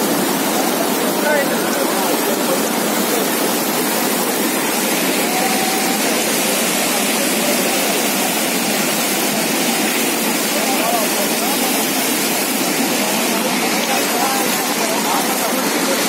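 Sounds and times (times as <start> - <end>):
floodwater rushing: 0.0 - 16.0.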